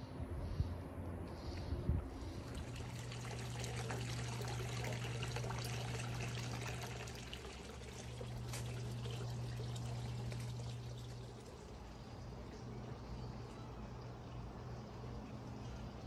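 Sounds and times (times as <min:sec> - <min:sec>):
pump humming: 0:02.1 - 0:16.0
water pouring and trickling: 0:02.2 - 0:14.6.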